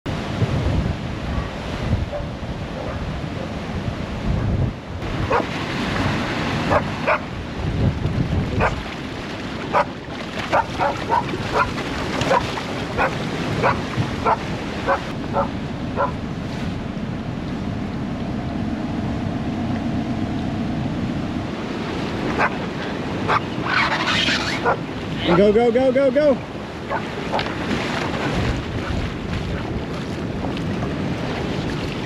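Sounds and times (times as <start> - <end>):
rushing floodwater: 0.1 - 18.1, 21.0 - 32.0
wind buffeting microphone: 0.1 - 19.4, 26.4 - 32.0
dog barking: 5.3 - 5.5, 6.7 - 7.3, 8.6 - 8.8, 9.7 - 9.9, 10.5 - 16.2, 22.4 - 22.6, 23.3 - 23.5, 24.6 - 25.4, 26.9 - 27.4.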